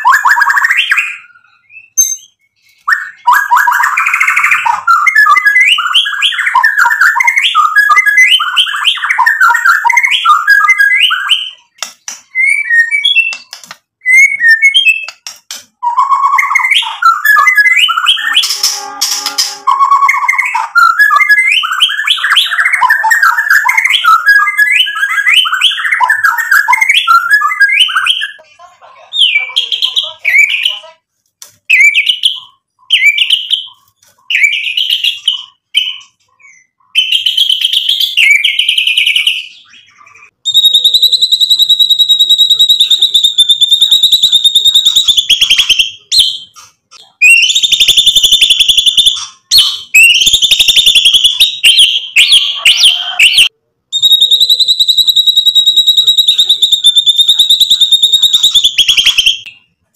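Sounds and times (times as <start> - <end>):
bird singing whistled phrases: 0.0 - 15.2, 15.8 - 28.4, 47.2 - 59.7.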